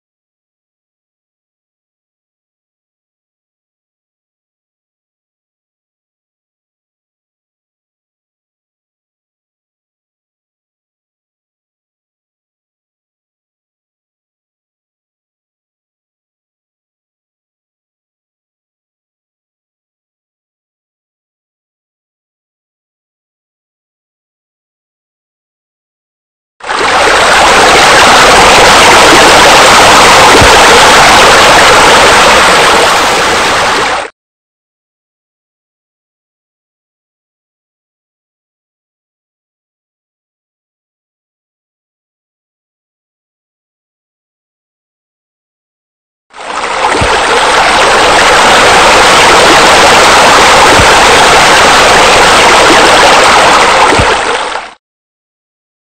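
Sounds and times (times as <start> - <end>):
rush of falling water: 26.6 - 34.1, 46.4 - 54.8.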